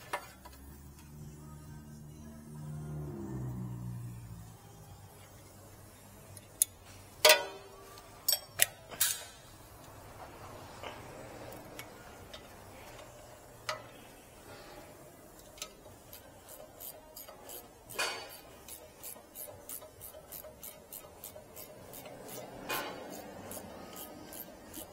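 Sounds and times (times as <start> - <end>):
ratchet wrench clicking: 6.3 - 10.0, 10.8 - 14.2, 15.2 - 24.9
metal tools clanking: 7.2 - 9.4.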